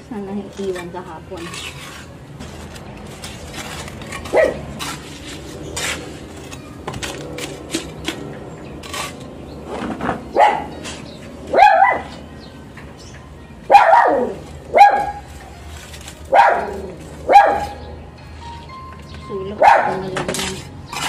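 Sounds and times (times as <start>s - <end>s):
dog barking: 4.3s - 4.6s, 10.4s - 10.7s, 11.5s - 12.1s, 13.7s - 15.2s, 16.3s - 17.8s, 19.6s - 20.1s.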